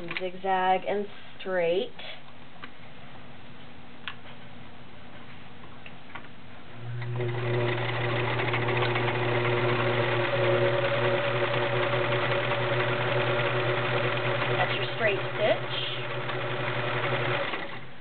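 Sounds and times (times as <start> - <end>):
sewing machine running: 6.9 - 17.9.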